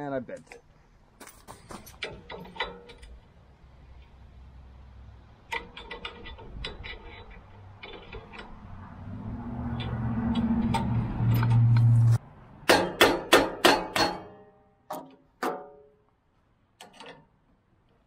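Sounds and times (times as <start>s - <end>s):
low rumble: 8.6s - 12.4s.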